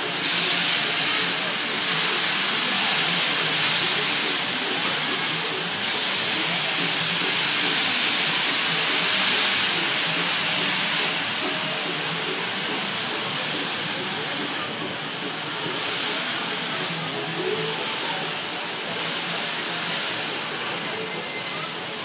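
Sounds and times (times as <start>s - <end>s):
steady rushing hiss: 0.0s - 21.1s.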